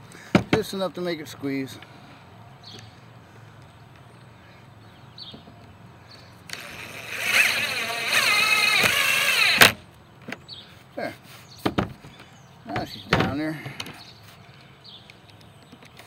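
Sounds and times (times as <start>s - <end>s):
cordless driver driving screw: 6.5s - 9.8s.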